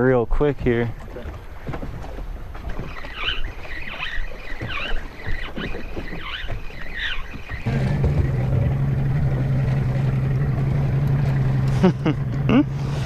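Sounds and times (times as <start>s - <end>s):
water sloshing against boat hull: 0.4s - 13.0s
short squeak: 2.9s - 7.7s.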